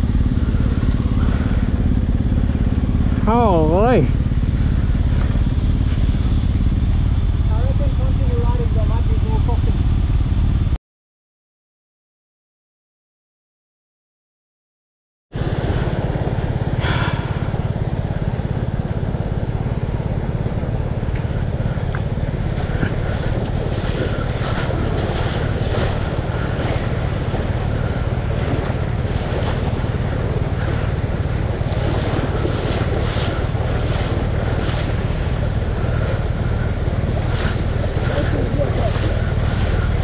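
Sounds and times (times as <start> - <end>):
wind buffeting microphone: 15.4 - 40.0
creek water rushing over rocks: 19.3 - 40.0.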